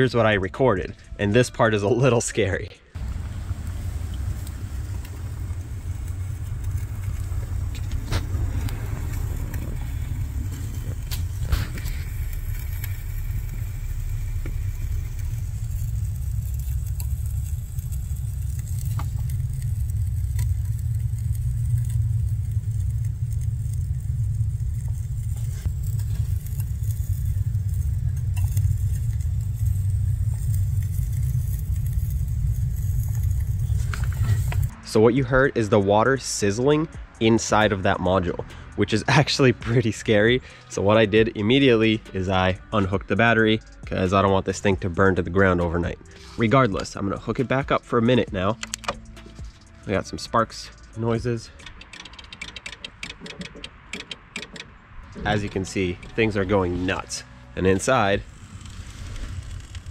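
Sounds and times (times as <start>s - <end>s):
low rumble: 2.9s - 51.6s, 54.8s - 59.9s
water sizzling in electronics: 3.0s - 34.7s
sharp clicks: 48.6s - 49.1s, 51.6s - 55.4s.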